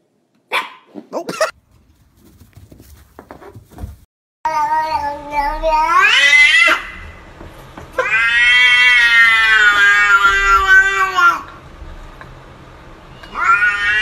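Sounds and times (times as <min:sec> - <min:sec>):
cat yowling: 0:04.6 - 0:07.0, 0:08.0 - 0:11.5, 0:13.2 - 0:14.0.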